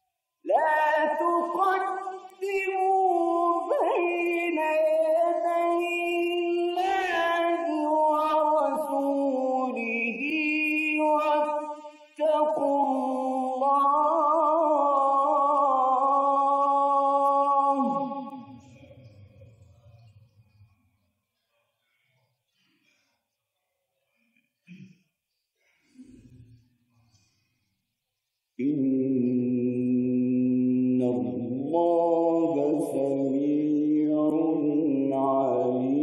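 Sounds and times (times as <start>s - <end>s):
man reciting melodically: 28.6s - 36.0s.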